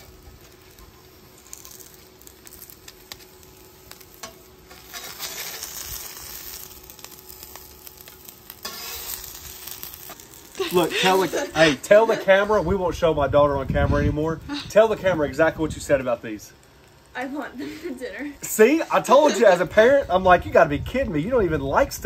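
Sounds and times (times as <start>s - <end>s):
tortillas sizzling in oil: 0.0s - 20.4s.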